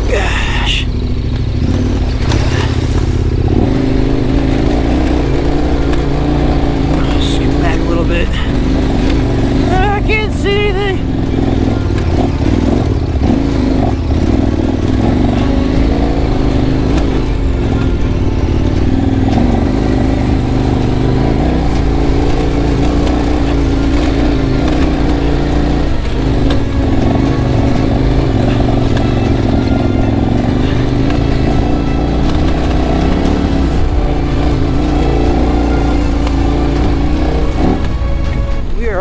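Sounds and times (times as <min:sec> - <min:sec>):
motorcycle engine under load: 0:00.8 - 0:39.0.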